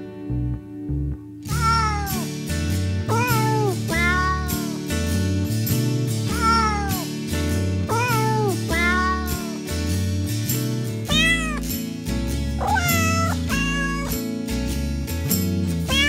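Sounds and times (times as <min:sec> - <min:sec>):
instrumental backing track: 0:00.0 - 0:16.0
cat meowing: 0:01.5 - 0:02.3, 0:03.1 - 0:04.8, 0:06.3 - 0:07.1, 0:07.9 - 0:09.6, 0:11.1 - 0:11.7, 0:12.6 - 0:14.2.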